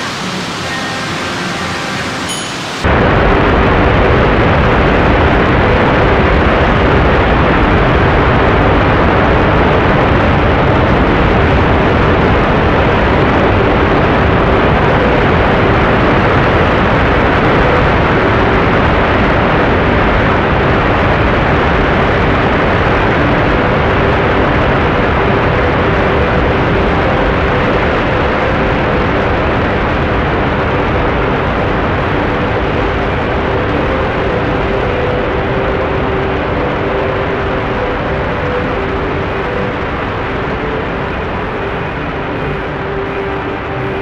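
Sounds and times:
river rapids rushing: 0.0 - 3.0.

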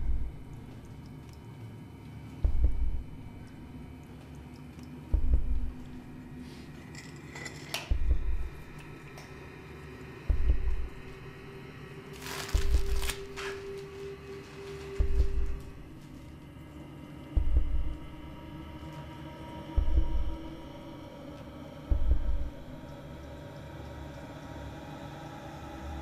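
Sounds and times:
deep booming thuds: 2.5 - 3.2, 10.3 - 11.0, 17.4 - 18.0.

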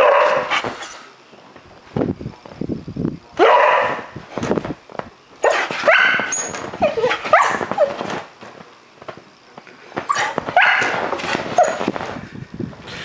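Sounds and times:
dog barking: 0.0 - 0.6, 3.4 - 4.1, 5.4 - 7.7, 10.1 - 11.0.

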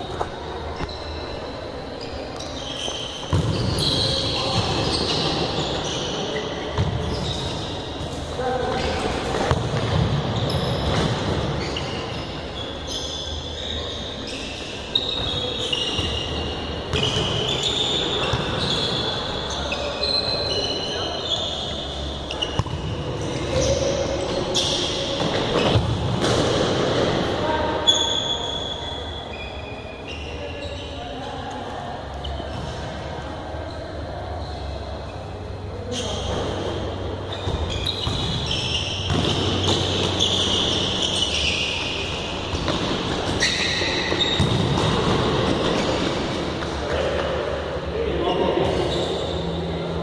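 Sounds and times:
sneakers squeaking on floor: 0.0 - 50.0
ball kicked and bouncing: 9.3 - 10.2, 44.1 - 45.8.

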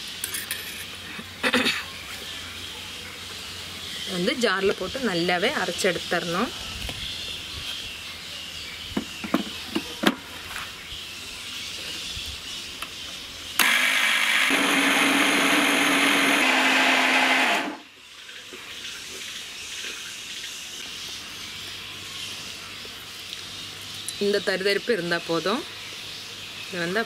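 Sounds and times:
mixer grinder motor running: 13.6 - 17.8.

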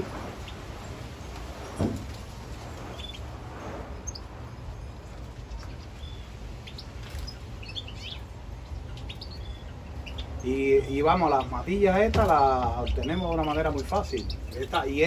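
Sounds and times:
low background rumble: 0.0 - 15.0
finches chirping: 2.9 - 3.3, 3.9 - 15.0.

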